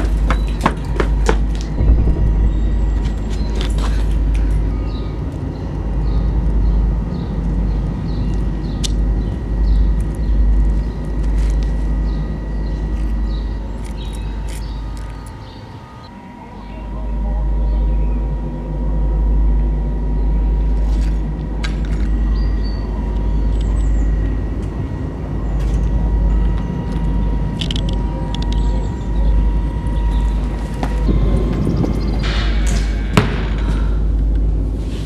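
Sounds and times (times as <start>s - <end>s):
heavy low rumble: 1.6s - 6.1s.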